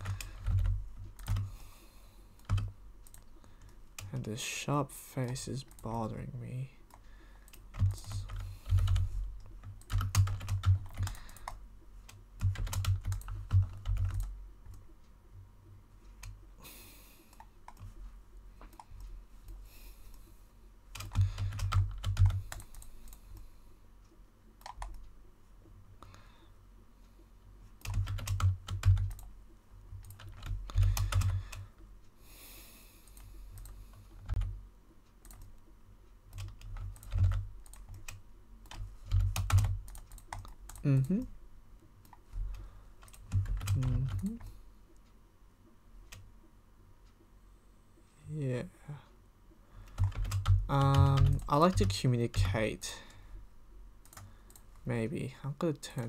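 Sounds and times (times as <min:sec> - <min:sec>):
computer keyboard typing: 0:00.0 - 0:01.6, 0:02.4 - 0:04.2, 0:06.9 - 0:14.8, 0:17.3 - 0:18.0, 0:20.9 - 0:23.4, 0:24.6 - 0:25.0, 0:27.8 - 0:29.3, 0:29.9 - 0:31.7, 0:33.0 - 0:34.6, 0:35.2 - 0:35.5, 0:36.3 - 0:41.3, 0:42.0 - 0:44.5, 0:49.8 - 0:52.6, 0:54.0 - 0:54.7.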